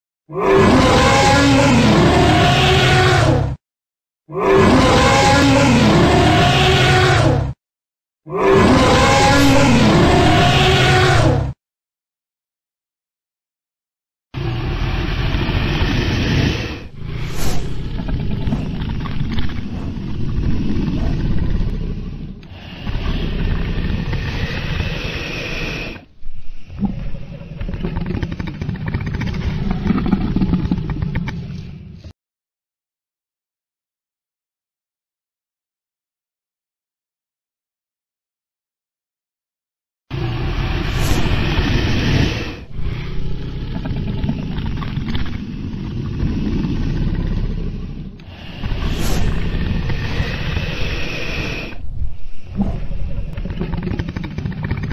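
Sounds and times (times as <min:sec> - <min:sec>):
deep continuous rumble: 0:14.7 - 0:25.5, 0:40.3 - 0:54.9.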